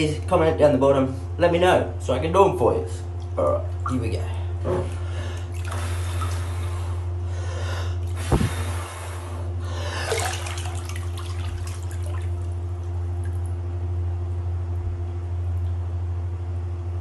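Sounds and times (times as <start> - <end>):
steady low hum: 0.0 - 17.0
bathwater sloshing and splashing: 3.2 - 7.0, 7.9 - 13.8.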